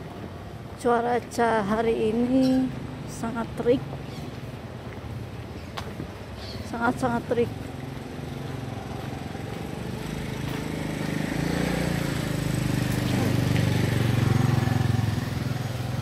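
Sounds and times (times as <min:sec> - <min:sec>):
motorcycle passing by: 0:06.9 - 0:16.0.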